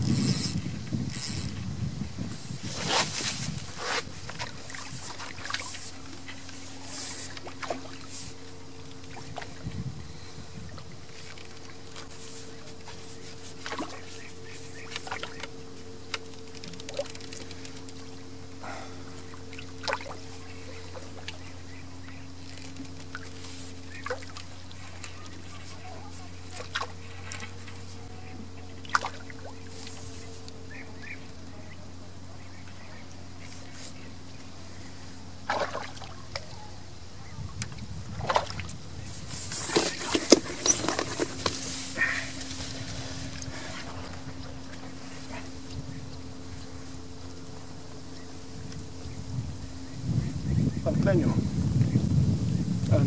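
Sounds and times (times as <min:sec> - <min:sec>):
fishing tackle clicking and rustling: 0:00.0 - 0:01.6, 0:11.1 - 0:18.3, 0:39.2 - 0:45.7
steady low hum: 0:00.0 - 0:53.0
short water splashes: 0:02.7 - 0:09.8, 0:10.7 - 0:15.6, 0:16.8 - 0:31.3, 0:35.4 - 0:36.7, 0:37.6 - 0:45.7
river water trickling over stones: 0:19.1 - 0:27.8.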